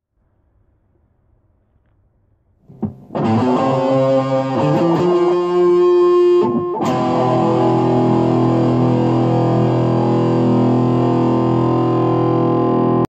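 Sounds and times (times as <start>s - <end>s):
guitar music: 2.7s - 13.0s.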